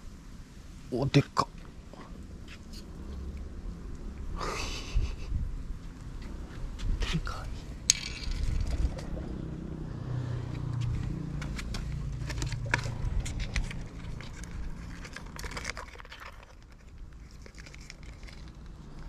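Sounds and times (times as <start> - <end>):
handling clicks and crinkles: 10.8 - 19.0.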